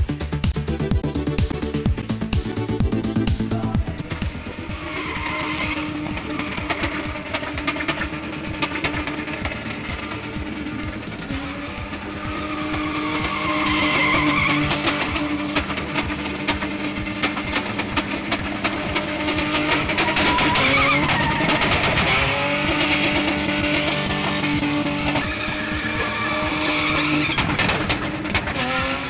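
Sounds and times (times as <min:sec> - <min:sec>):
music: 0:00.0 - 0:29.0
truck engine at high revs: 0:00.0 - 0:29.0
tyres squealing: 0:01.6 - 0:29.0.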